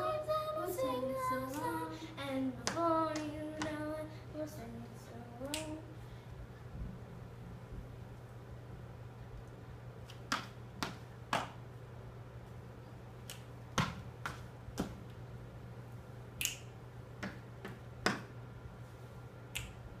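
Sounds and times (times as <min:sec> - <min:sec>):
low steady hum: 0:00.0 - 0:20.0
sharp finger snaps: 0:05.4 - 0:05.8, 0:16.4 - 0:17.4, 0:19.5 - 0:19.8.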